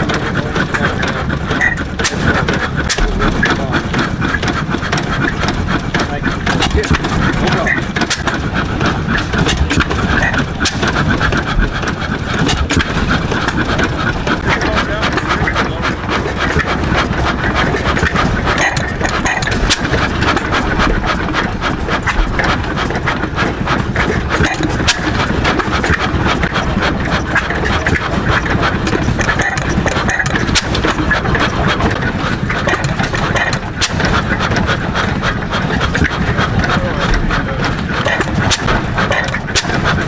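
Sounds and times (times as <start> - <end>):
stationary gas engine clattering: 0.0 - 40.0.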